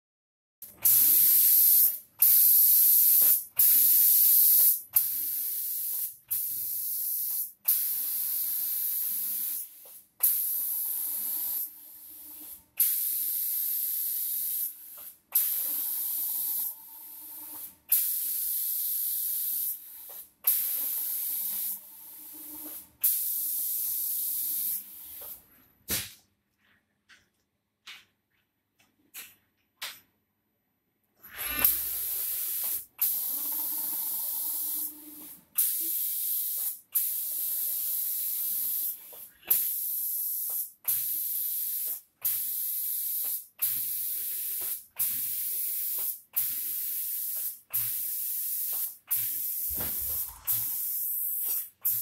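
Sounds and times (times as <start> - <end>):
spray gun hissing bursts: 0.8 - 9.8, 31.6 - 32.8, 47.0 - 52.0.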